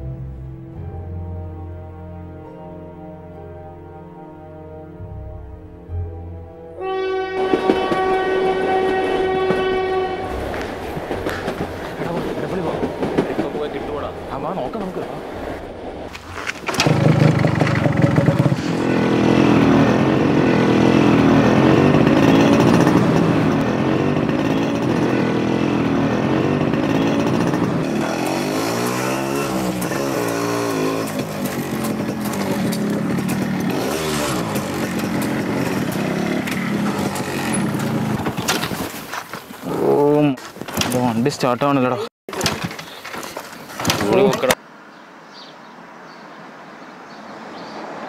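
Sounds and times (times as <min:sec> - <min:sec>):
two-stroke motorcycle engine: 0:16.6 - 0:38.8.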